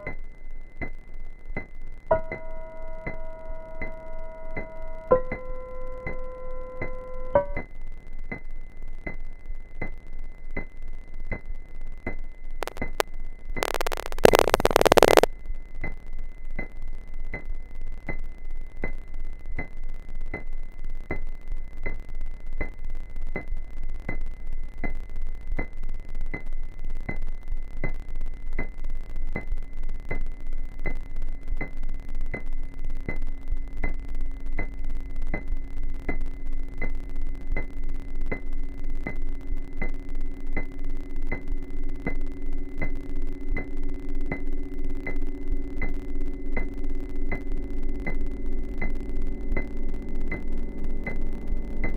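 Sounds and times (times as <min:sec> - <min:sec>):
pulse of electronic clicks: 0:00.0 - 0:16.0, 0:16.6 - 0:51.9
low hum: 0:00.0 - 0:51.9
high steady tone: 0:02.1 - 0:07.6, 0:12.6 - 0:13.0, 0:13.6 - 0:15.3, 0:38.1 - 0:51.9
burst of static: 0:12.6 - 0:15.3, 0:42.3 - 0:51.9
low drone: 0:42.0 - 0:51.9.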